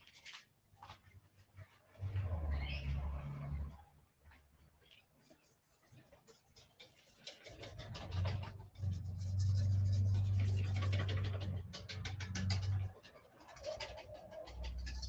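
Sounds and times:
whisk scraping a bowl: 0:06.7 - 0:11.4
low steady hum: 0:07.8 - 0:13.0.

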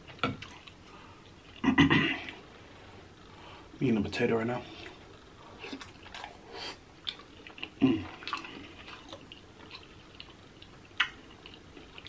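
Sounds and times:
wet chewing and lip smacking: 0:05.6 - 0:12.0.

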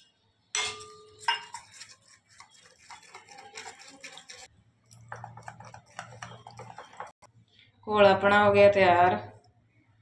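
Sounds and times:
metal spoon clinking on steel bowl: 0:00.5 - 0:07.2
spoon scraping and tapping bowl: 0:00.6 - 0:07.3.

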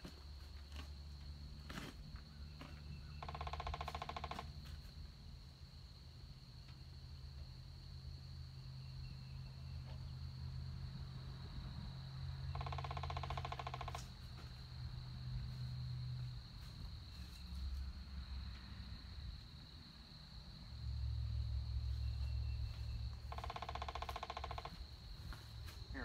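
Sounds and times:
woodpecker drumming: 0:02.6 - 0:04.6, 0:12.5 - 0:14.2, 0:22.7 - 0:24.9.

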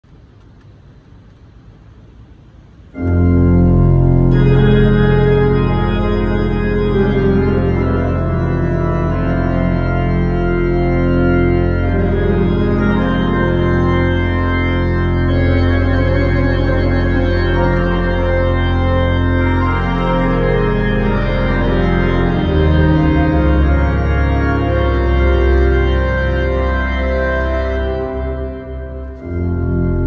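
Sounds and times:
faint room hiss: 0:00.1 - 0:06.3
church organ chords: 0:02.9 - 0:30.0.

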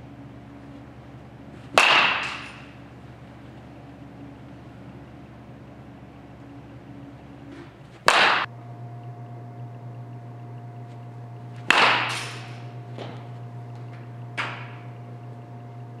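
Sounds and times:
steady low hum: 0:00.0 - 0:16.0
baseball bat cracking ball: 0:01.4 - 0:03.9, 0:07.5 - 0:08.5, 0:11.5 - 0:15.0.

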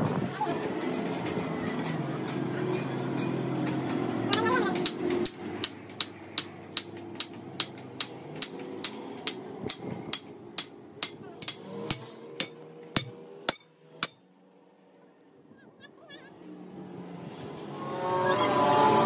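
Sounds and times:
hammer striking steel shaft: 0:04.3 - 0:14.2.

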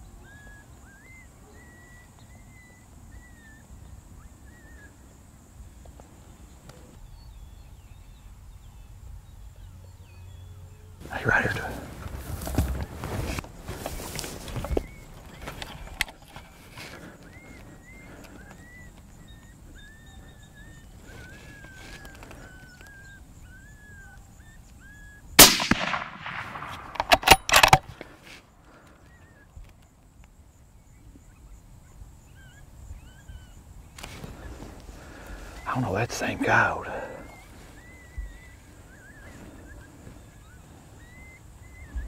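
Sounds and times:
suppressed rifle shot: 0:25.4 - 0:28.1.

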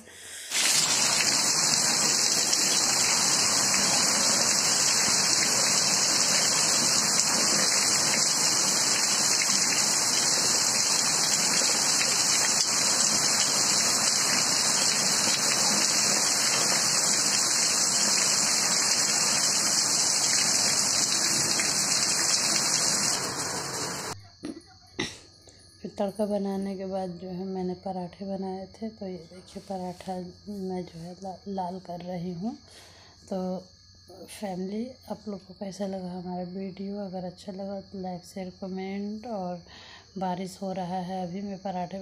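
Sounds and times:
heavy rain: 0:00.6 - 0:24.2.

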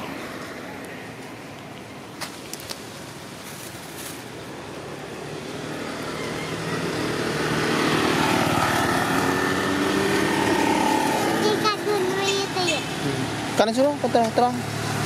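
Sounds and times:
motor scooter engine approaching: 0:04.9 - 0:15.0.

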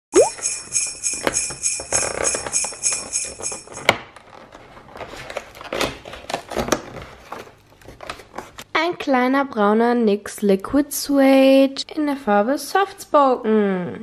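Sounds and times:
music with jingling bells: 0:00.2 - 0:03.8.

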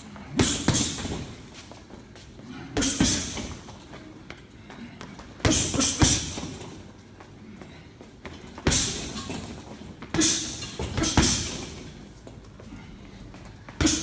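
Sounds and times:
boxing gloves hitting punch bag: 0:00.0 - 0:01.5, 0:02.7 - 0:03.9, 0:05.2 - 0:06.8, 0:08.3 - 0:12.0, 0:13.7 - 0:14.0.

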